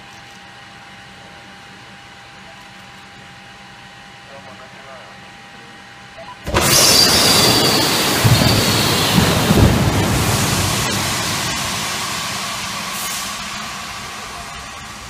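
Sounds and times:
rush of gas inflating slide: 0:06.5 - 0:15.0.

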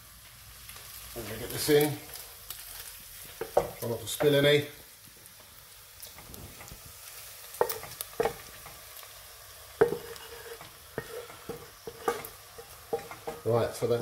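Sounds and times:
meat sizzling: 0:00.0 - 0:14.0
utensil knocking and scraping pan: 0:07.6 - 0:08.7, 0:09.8 - 0:13.5.

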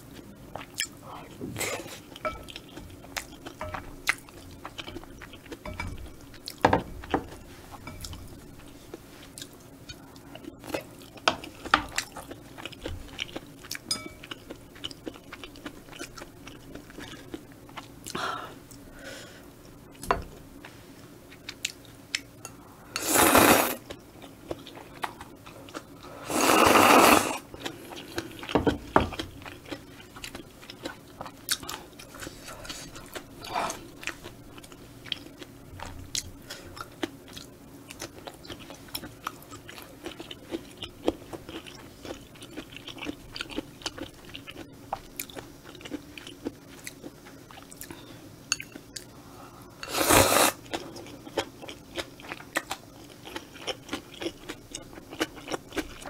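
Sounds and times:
loud noodle slurps: 0:23.0 - 0:23.8, 0:26.2 - 0:27.4, 0:49.9 - 0:50.6.

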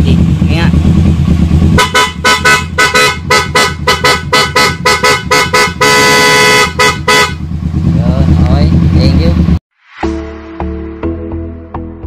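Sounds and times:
motorcycle horn toots: 0:01.7 - 0:07.5.

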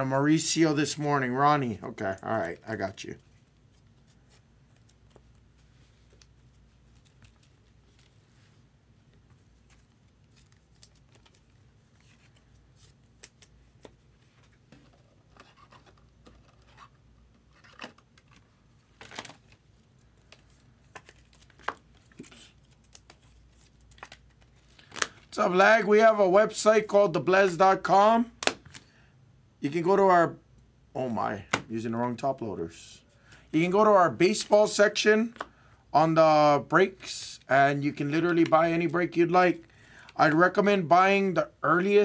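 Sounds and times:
trading cards and packaging rustling: 0:01.6 - 0:26.1, 0:33.2 - 0:40.9.

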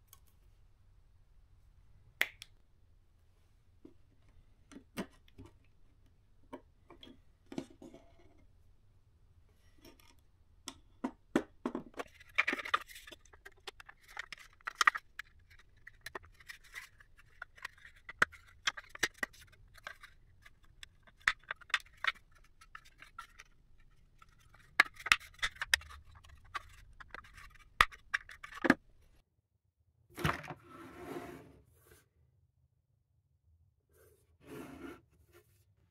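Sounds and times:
plastic parts clicking and scraping: 0:11.8 - 0:28.9.

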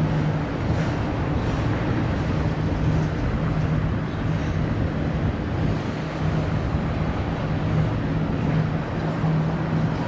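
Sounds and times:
freight train rumbling on rails: 0:00.0 - 0:10.0.

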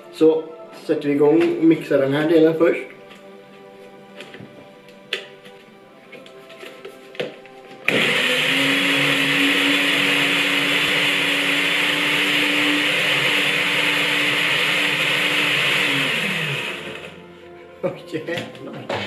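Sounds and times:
stick blender motor whine: 0:07.8 - 0:17.3.

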